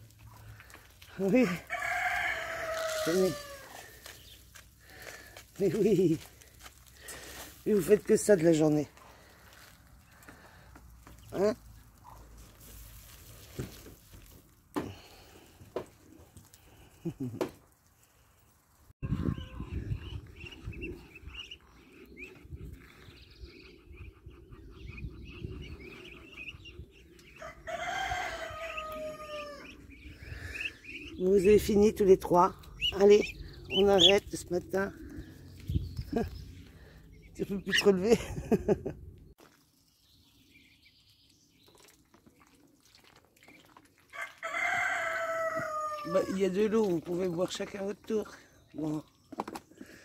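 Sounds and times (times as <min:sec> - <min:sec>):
long crow-like call: 0:01.6 - 0:03.9, 0:44.2 - 0:46.1
ducklings peeping: 0:19.0 - 0:38.1.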